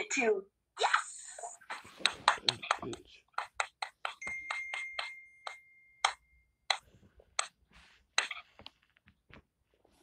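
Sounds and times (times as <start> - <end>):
toothbrush scrubbing teeth: 1.4 - 5.2
thin high beep: 4.2 - 6.4.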